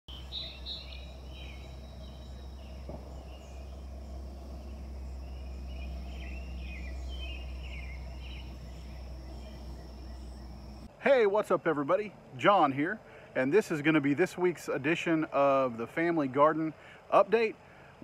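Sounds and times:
high insect drone: 0.1s - 10.9s
low background rumble: 0.1s - 11.0s
birds chirping: 0.1s - 14.0s.

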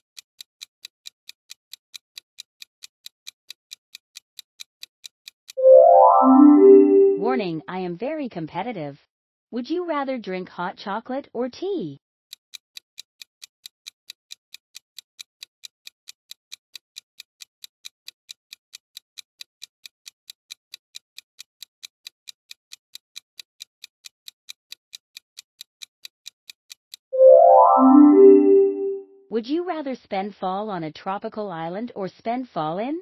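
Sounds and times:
clock ticking: 12.3s - 28.9s.

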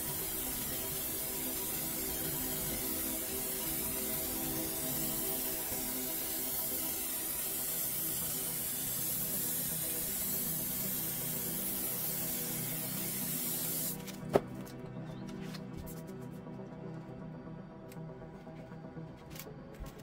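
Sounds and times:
aerosol spray can hissing: 0.0s - 14.2s.

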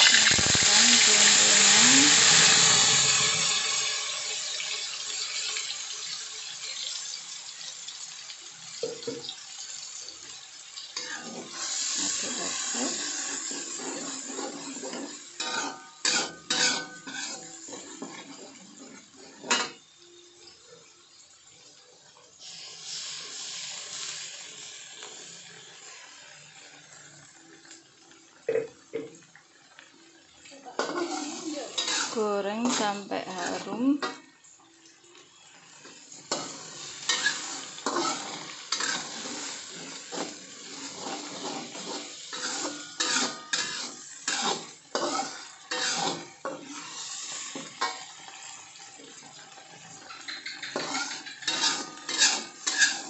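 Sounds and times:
paste sizzling in hot oil: 0.0s - 20.6s, 21.4s - 53.0s
metal spatula clanking on wok: 15.4s - 17.4s.

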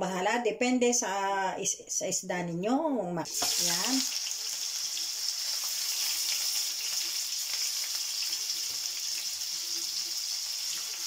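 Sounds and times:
fish sizzling in frying pan: 3.3s - 11.0s.

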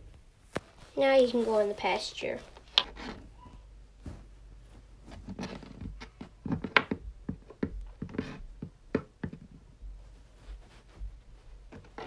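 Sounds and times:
plastic toys tapping on floor: 5.8s - 9.5s.

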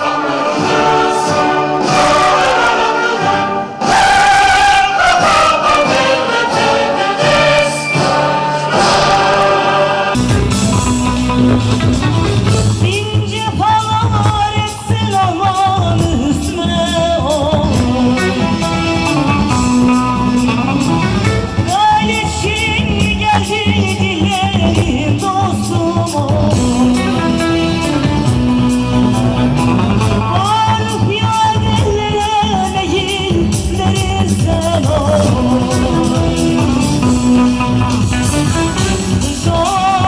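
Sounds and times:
amplified band accompaniment: 0.0s - 40.0s
woman singing into microphone: 12.6s - 20.8s, 21.6s - 29.4s, 30.0s - 40.0s.

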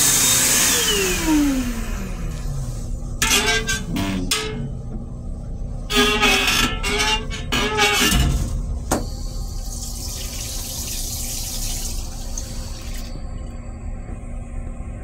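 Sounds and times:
toilet flush water hissing: 0.0s - 2.7s, 8.9s - 13.2s
squealing sound: 5.9s - 8.4s.

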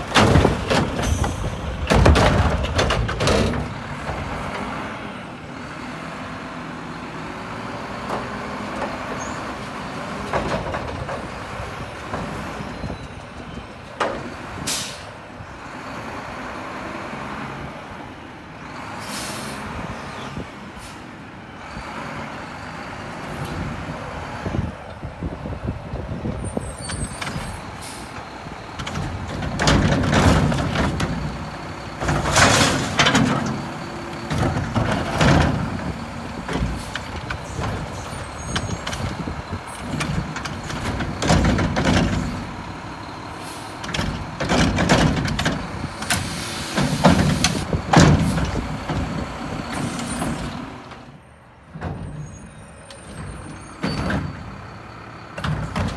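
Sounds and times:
air brake hisses: 14.7s - 15.1s, 19.0s - 19.7s, 46.2s - 46.8s
garbage truck engine running: 21.7s - 55.9s.

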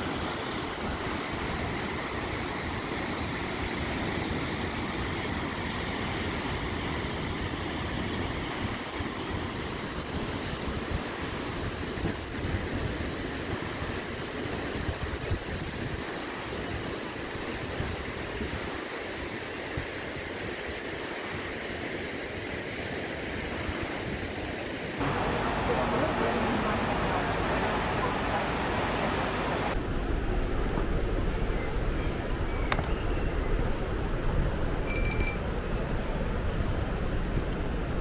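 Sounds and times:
waterfall rushing: 25.0s - 29.8s.

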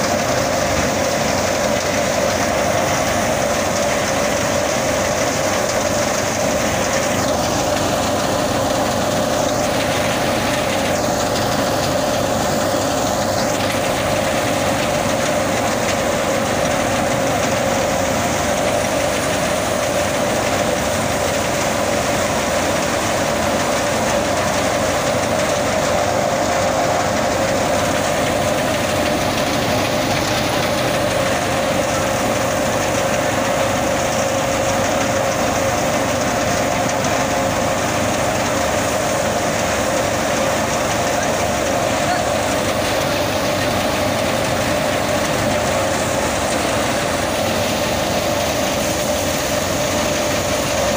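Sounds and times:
wheat thresher humming: 0.0s - 50.9s.

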